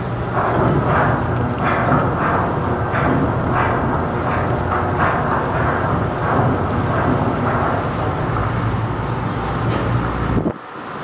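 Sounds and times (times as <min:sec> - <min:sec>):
churning water: 0:00.0 - 0:11.0
ship engine rumble: 0:00.0 - 0:11.0.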